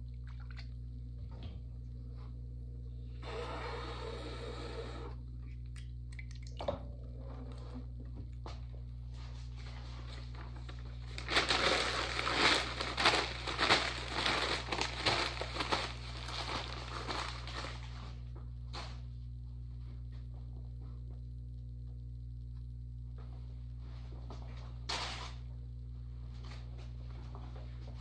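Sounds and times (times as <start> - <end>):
low hum: 0.0 - 28.0
plastic bag crinkling: 10.3 - 18.0.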